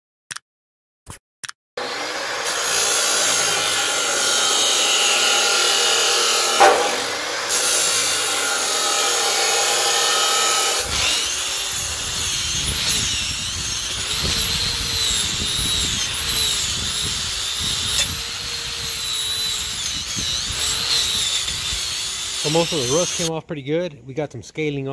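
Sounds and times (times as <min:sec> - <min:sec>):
angle grinder scouring metal: 0:01.8 - 0:23.3
chop saw cutting steel: 0:01.8 - 0:23.3
sharp clack: 0:06.6 - 0:07.4.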